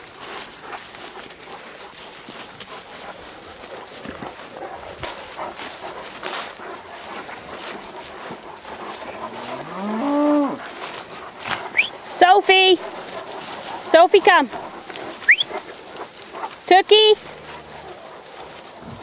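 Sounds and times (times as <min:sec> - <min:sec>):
footsteps through dry grass: 0:00.0 - 0:19.0
cow mooing: 0:09.2 - 0:10.6, 0:17.2 - 0:18.0.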